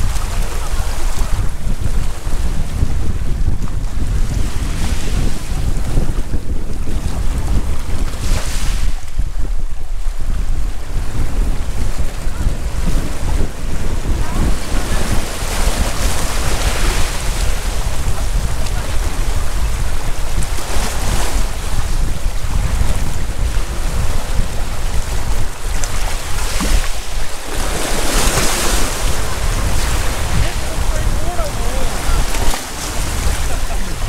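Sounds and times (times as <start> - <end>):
wind rumbling on microphone: 0.0 - 34.0
waves washing onto gravel beach: 11.5 - 22.0, 23.2 - 34.0.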